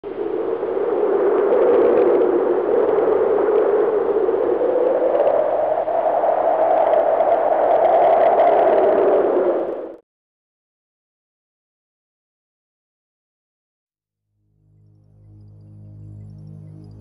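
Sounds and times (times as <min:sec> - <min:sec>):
rising synthesized wind hiss: 0:00.0 - 0:10.0, 0:14.4 - 0:17.0.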